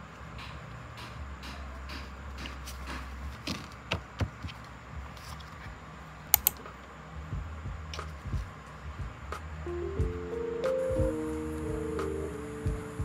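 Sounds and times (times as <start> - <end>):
sharp clicks: 6.4 - 6.6
small objects clicking and tapping: 6.4 - 6.6.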